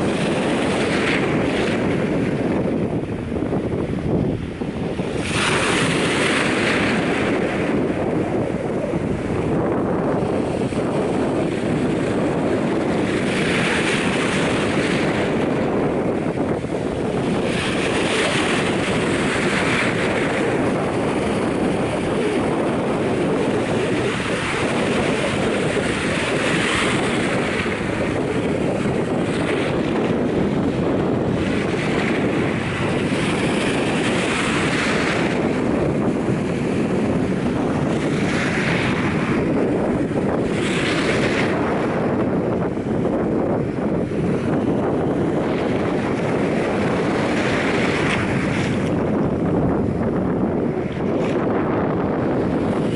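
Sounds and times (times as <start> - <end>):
small waves washing on shore: 0.0 - 52.9
wind buffeting microphone: 0.0 - 52.9.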